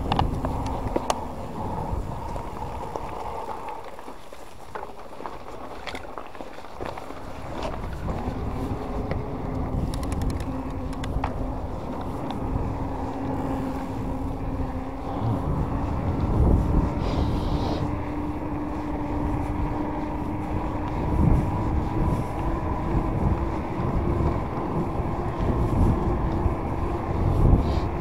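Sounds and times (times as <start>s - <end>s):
e-bike motor hum: 0.0s - 28.0s
tyres rolling over path: 0.0s - 28.0s
wind buffeting microphone: 0.0s - 28.0s
bike clicks and knocks: 2.4s - 13.4s.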